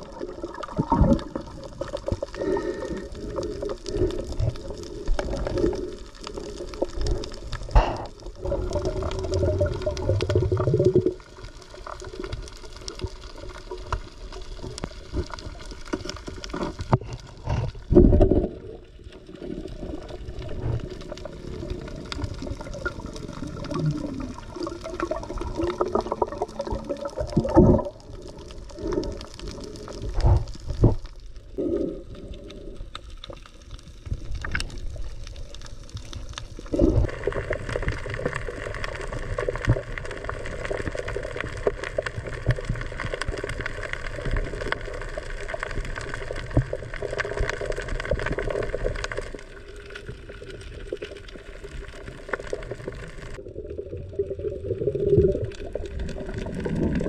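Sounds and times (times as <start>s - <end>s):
gurgling bubbles: 0.0s - 57.0s
muffled underwater water movement: 0.0s - 57.0s
underwater rushing: 0.0s - 57.0s
dull knocks underwater: 16.9s - 18.6s.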